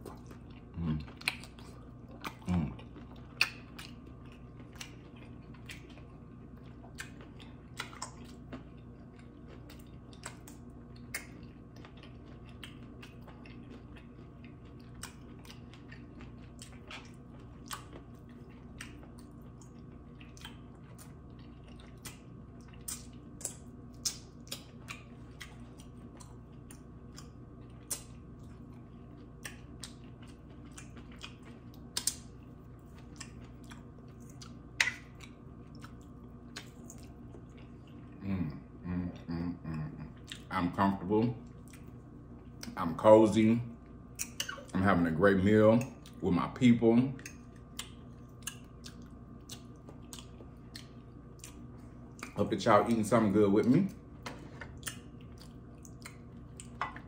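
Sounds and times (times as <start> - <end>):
chewing: 0.0 - 40.7, 41.4 - 42.8, 43.8 - 46.2, 47.1 - 53.1, 53.9 - 57.0
steady low hum: 0.0 - 57.0
mouth clicks and smacks: 22.8 - 25.5, 33.2 - 37.1, 44.1 - 44.7.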